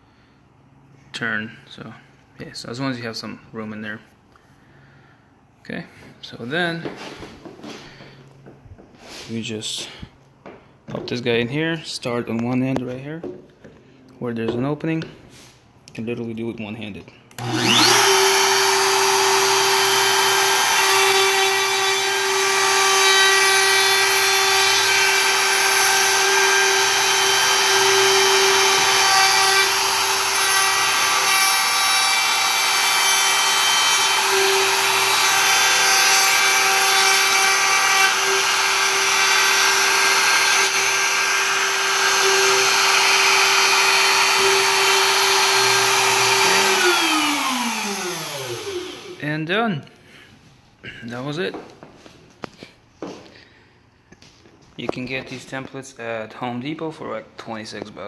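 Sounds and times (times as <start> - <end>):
router whining: 17.3 - 49.2.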